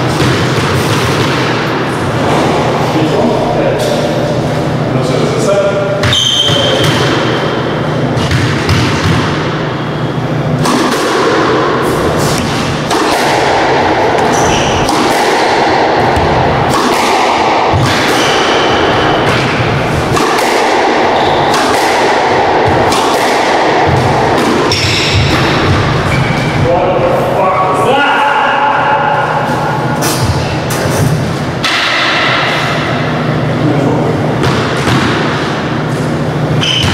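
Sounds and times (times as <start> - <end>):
squash ball struck by rackets: 0.0 - 2.8, 5.9 - 9.8, 10.4 - 26.7, 29.6 - 33.3, 34.3 - 35.9, 36.5 - 36.9.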